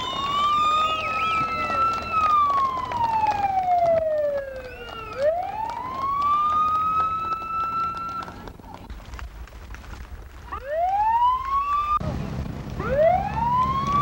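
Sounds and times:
fire truck siren wailing: 0.0 - 8.4, 10.5 - 12.0, 12.8 - 14.0.

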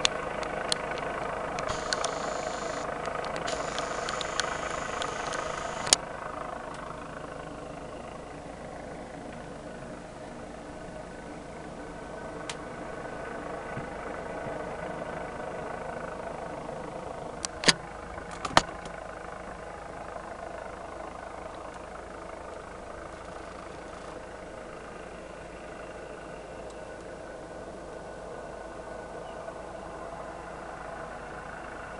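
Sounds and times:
sharp clicks: 0.0 - 6.0
helicopter engine and rotor drone: 0.0 - 31.9.

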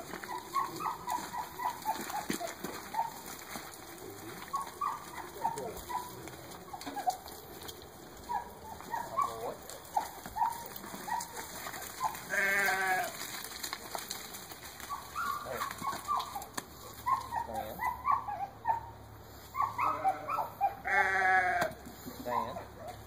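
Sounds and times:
feet scuffling through dry leaves: 0.0 - 7.6, 8.2 - 17.4
chickens clucking: 0.0 - 12.7, 21.6 - 23.0.

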